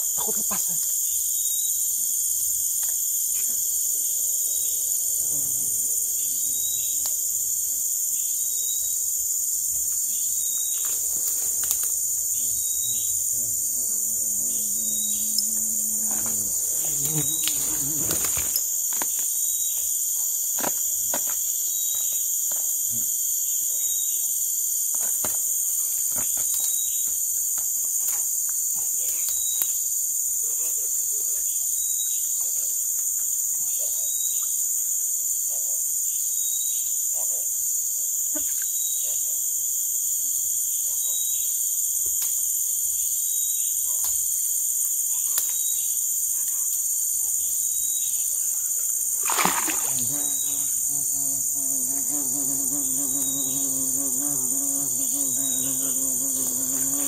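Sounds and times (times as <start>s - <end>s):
pulsing insect call: 0.0s - 24.9s, 42.8s - 57.0s
forest insects shrilling: 10.1s - 20.0s, 43.0s - 57.0s.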